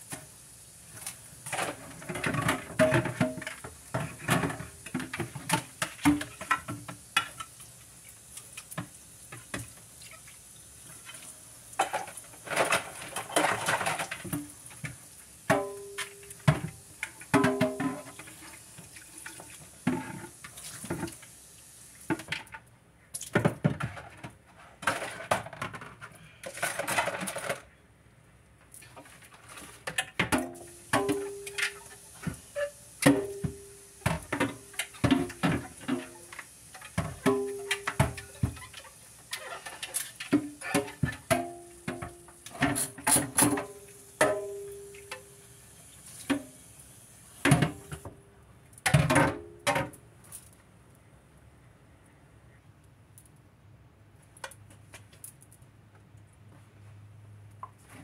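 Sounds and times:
dishes clinking and clattering: 0:01.5 - 0:07.5, 0:11.8 - 0:14.5, 0:15.5 - 0:18.4, 0:29.9 - 0:45.3.

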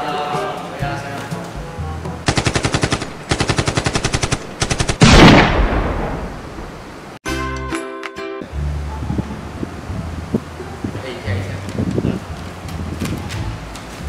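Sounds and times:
machine-gun fire: 0:02.3 - 0:06.7
loud blast: 0:05.0 - 0:07.0.

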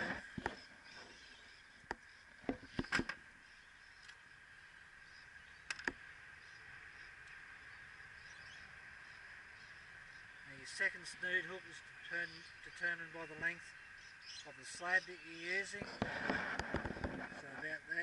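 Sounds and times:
high insect drone: 0:00.0 - 0:18.0
small sharp clicks: 0:04.0 - 0:04.2, 0:05.6 - 0:06.0.

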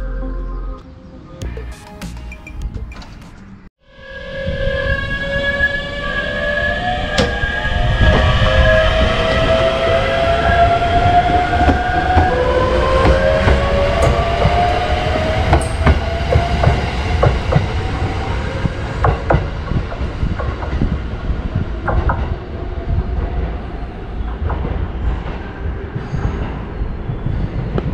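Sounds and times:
train wheels clacking on rail joints: 0:10.5 - 0:27.9.

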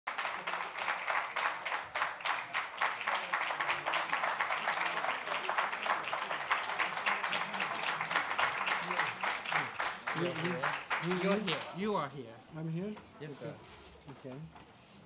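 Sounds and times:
crowd clapping: 0:00.0 - 0:12.0
murmur of voices: 0:00.2 - 0:15.0.

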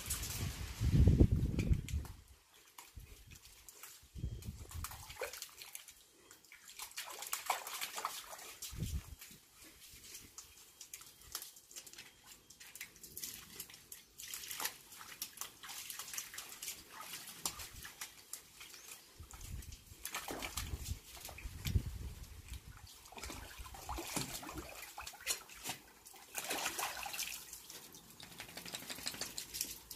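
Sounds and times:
water lapping: 0:12.6 - 0:21.8, 0:22.4 - 0:29.9.

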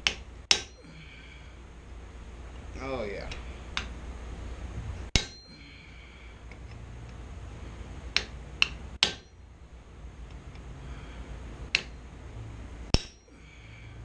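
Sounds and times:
hammer striking chisel on hot steel: 0:00.0 - 0:00.9, 0:05.1 - 0:05.7, 0:08.1 - 0:09.4, 0:11.7 - 0:12.0, 0:12.9 - 0:13.4.

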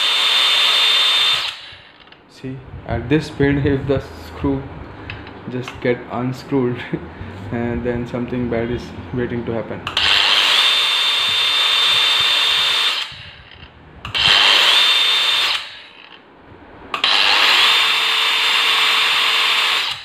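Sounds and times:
angle grinder motor whine: 0:00.0 - 0:02.2, 0:10.0 - 0:16.3, 0:16.9 - 0:20.0.

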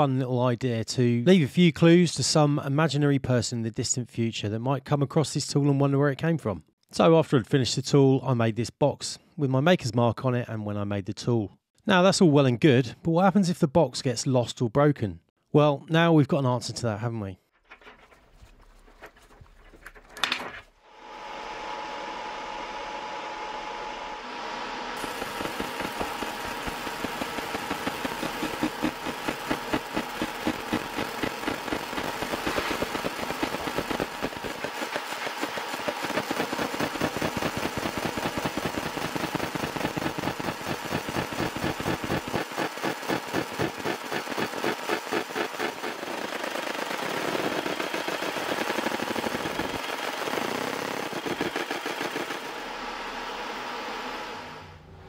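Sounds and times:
steady hum: 0:20.9 - 0:55.0
laser engraving pulses: 0:25.0 - 0:54.4.

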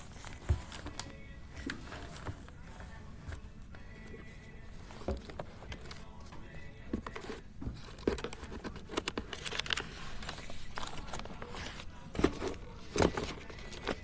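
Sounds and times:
paper rustling: 0:00.0 - 0:14.0.

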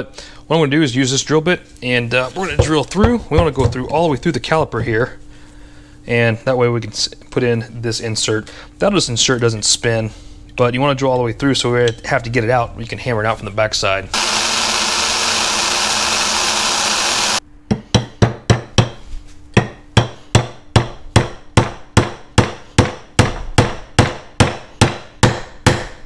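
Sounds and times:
cordless drill drilling: 0:14.2 - 0:17.4.

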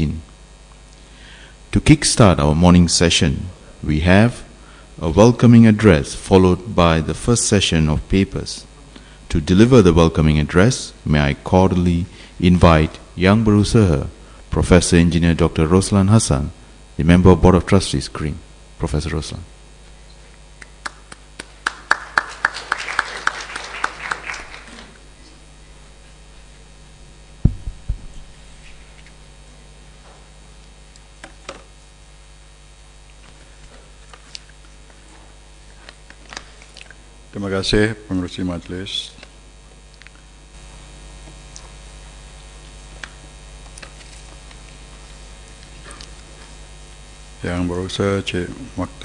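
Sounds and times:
electrical mains hum: 0:00.0 - 0:49.0
sparse audience applause: 0:20.8 - 0:25.0
low thumps: 0:27.4 - 0:28.4.

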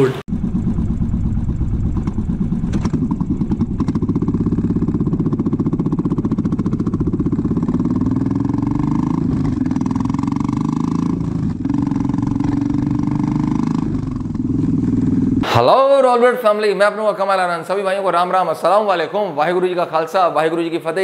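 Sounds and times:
motorcycle engine revving: 0:00.0 - 0:15.5.

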